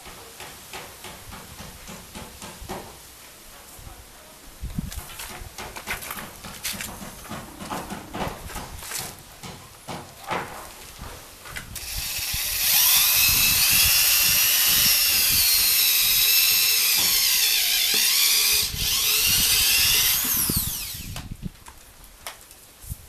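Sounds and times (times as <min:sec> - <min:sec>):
electric drill boring into rubber: 0:11.8 - 0:21.3.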